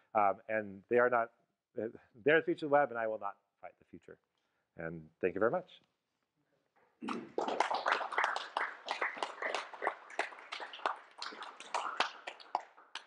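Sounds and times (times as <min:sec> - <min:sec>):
audience clapping: 0:07.0 - 0:13.0.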